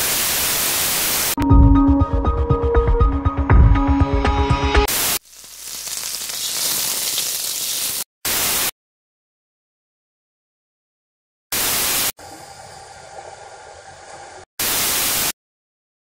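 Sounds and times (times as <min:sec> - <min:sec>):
tv static bursts: 0:00.0 - 0:01.4, 0:04.9 - 0:08.7, 0:11.6 - 0:12.2, 0:14.6 - 0:15.4
electronic music with a beat: 0:01.4 - 0:04.8.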